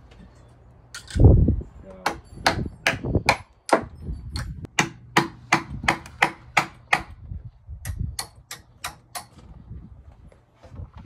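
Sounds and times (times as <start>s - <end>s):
hammer driving nails into wood: 2.1s - 7.1s.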